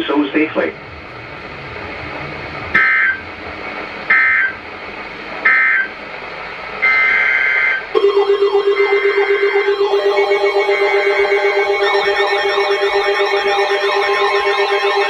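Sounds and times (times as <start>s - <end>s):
pulsing electronic alarm: 0.7s - 4.6s, 5.3s - 6.1s, 6.7s - 15.0s
digital data bursts screeching: 2.7s - 3.2s, 4.1s - 4.6s, 6.8s - 15.0s.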